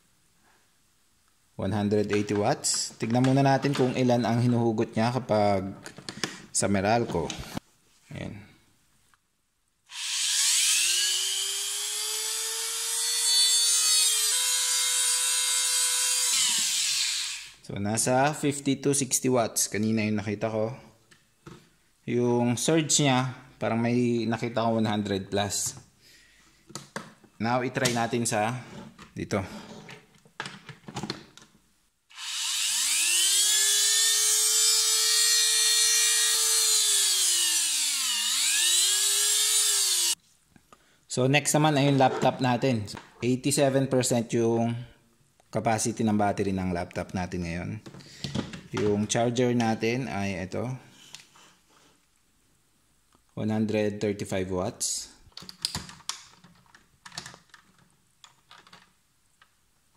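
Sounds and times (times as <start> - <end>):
rotary tool motor whine: 9.9 - 17.6, 32.1 - 40.2.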